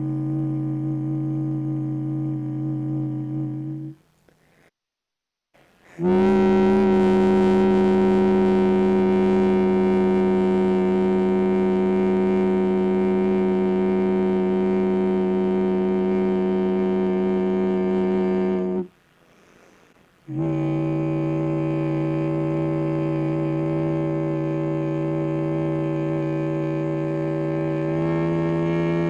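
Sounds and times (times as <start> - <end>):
held low drone note: 0.0 - 4.0, 6.0 - 18.9, 20.3 - 29.0.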